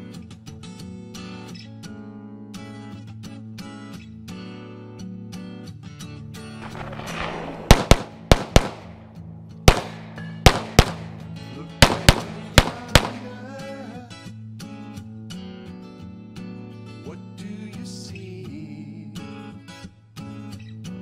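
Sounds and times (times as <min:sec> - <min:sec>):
guitar background music: 0:00.0 - 0:21.0
pistol shots: 0:06.6 - 0:13.4.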